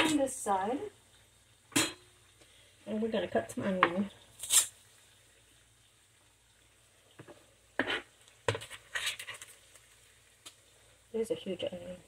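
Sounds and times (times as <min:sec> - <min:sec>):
potatoes sizzling in a pan: 0:00.0 - 0:12.0
crackly rustles: 0:07.9 - 0:10.6.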